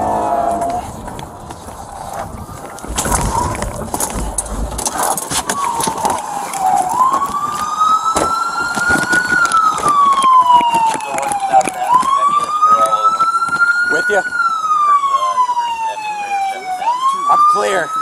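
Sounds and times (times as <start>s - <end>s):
police siren wailing: 0.0s - 18.0s
knocks and rustling: 0.8s - 11.0s.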